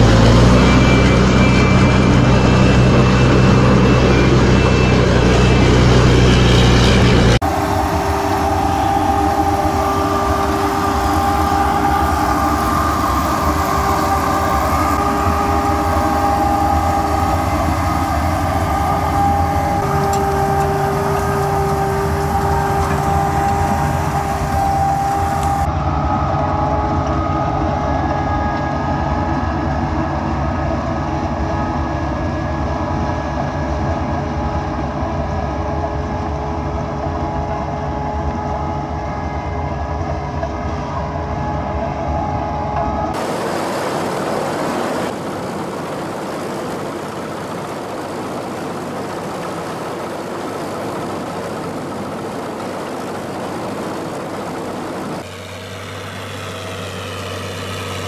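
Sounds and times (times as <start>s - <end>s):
harvester drive whine: 0.0s - 58.0s
tractor engine drone: 0.0s - 58.0s.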